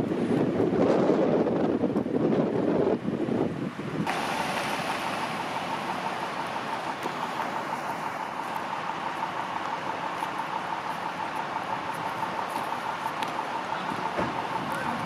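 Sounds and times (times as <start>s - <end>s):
wind buffeting microphone: 0.0s - 6.7s
idling emergency vehicles hum: 0.0s - 15.0s.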